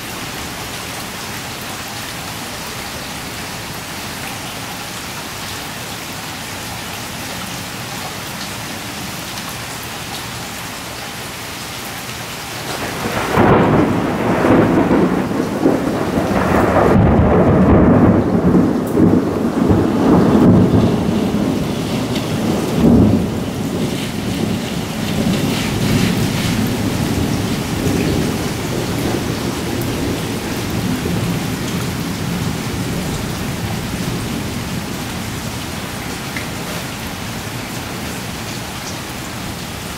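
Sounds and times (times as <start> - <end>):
heavy rain on pavement: 0.0 - 39.9
thunder rumbling: 12.6 - 36.8.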